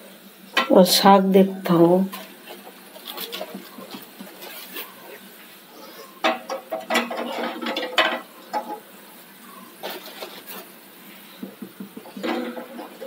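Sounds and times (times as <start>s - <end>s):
eggs knocking against metal pot: 6.2s - 8.8s, 11.4s - 13.0s.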